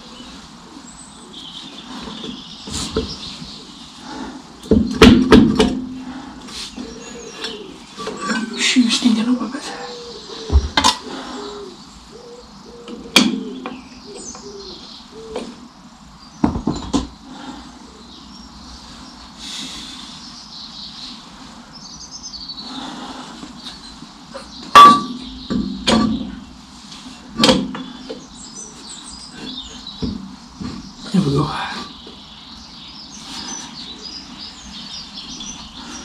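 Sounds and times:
metal knocks and clanks: 4.7s - 5.9s, 24.7s - 26.4s.

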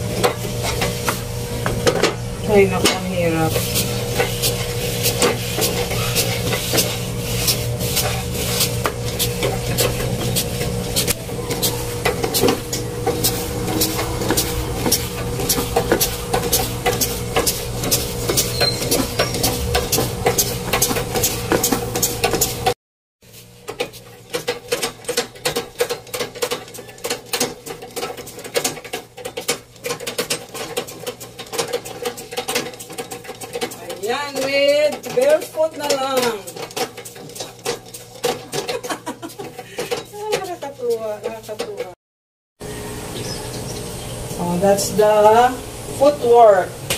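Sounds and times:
low hum: 9.1s - 20.4s
treadle sewing machine clattering: 9.1s - 22.8s, 23.7s - 42.0s.

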